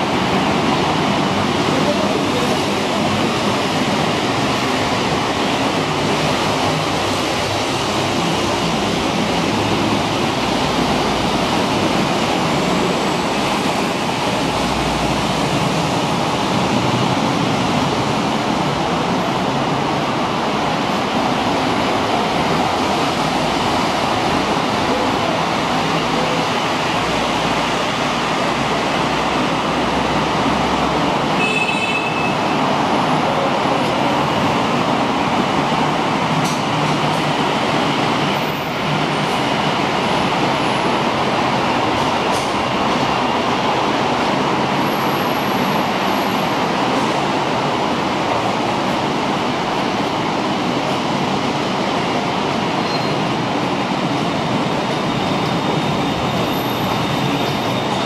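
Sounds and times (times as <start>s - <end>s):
city traffic: 0.0s - 58.0s
elevated train noise: 0.0s - 58.0s.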